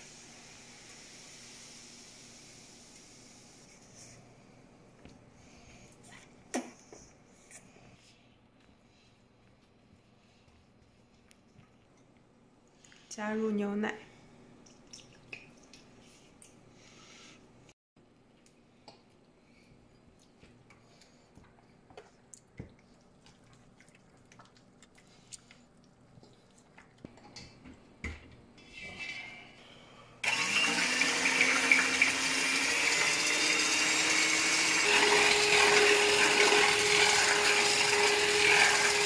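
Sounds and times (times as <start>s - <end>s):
electric hand mixer running: 30.2s - 39.0s.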